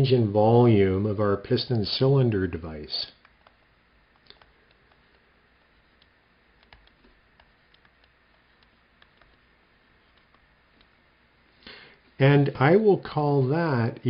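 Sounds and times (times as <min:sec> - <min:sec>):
stylus tapping on tablet screen: 0:03.2 - 0:05.2, 0:05.8 - 0:11.0.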